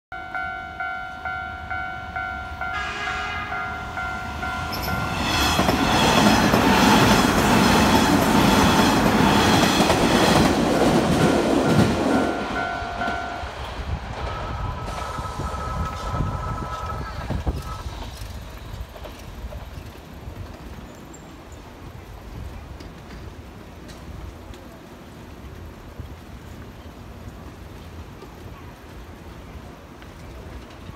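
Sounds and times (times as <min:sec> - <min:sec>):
level crossing bell ringing: 0:00.1 - 0:05.2, 0:10.8 - 0:13.5
train horn: 0:01.1 - 0:05.9
train wheels clattering over rails: 0:04.6 - 0:21.3.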